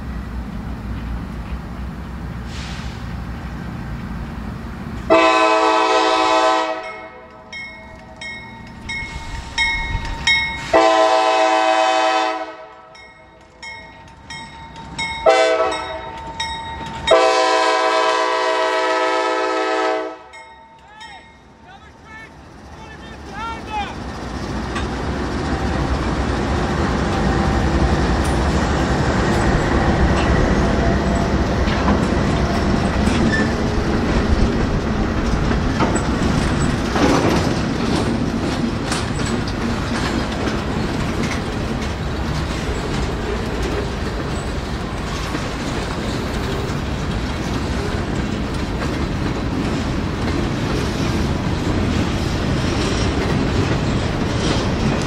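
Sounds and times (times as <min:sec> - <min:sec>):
diesel locomotives passing: 0:00.0 - 0:55.0
train wheels clattering over rail joints: 0:07.3 - 0:11.1, 0:21.5 - 0:55.0.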